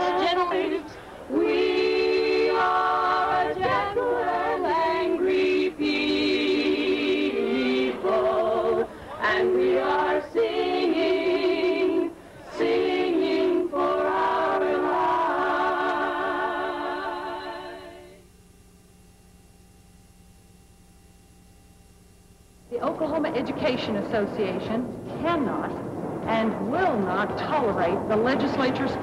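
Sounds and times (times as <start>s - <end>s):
choir singing in harmony: 0.0s - 18.2s.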